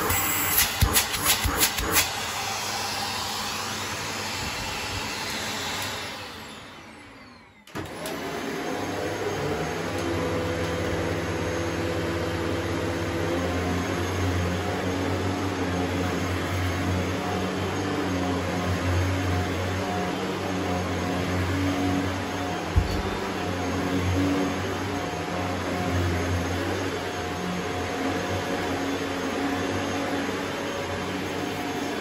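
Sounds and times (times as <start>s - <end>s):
motor winding down whine: 0.0s - 10.1s
vacuum cleaner running: 0.0s - 32.0s.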